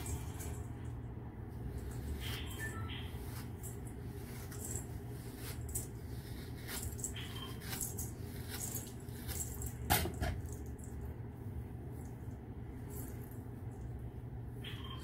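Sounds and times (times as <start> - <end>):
low room hum: 0.0 - 15.0
comb scratching through hair: 1.6 - 9.8
hands brushing hair: 1.8 - 9.6.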